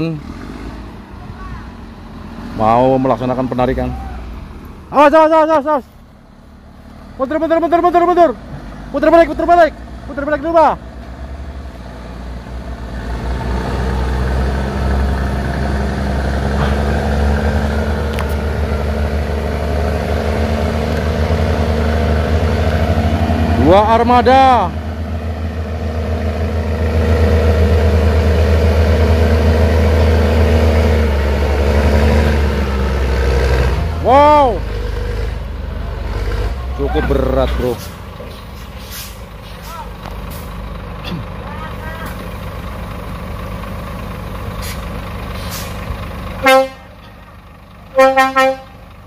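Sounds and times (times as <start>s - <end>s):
truck diesel engine rumbling: 0.0s - 49.0s
truck horn toots: 46.4s - 47.1s, 47.9s - 48.8s.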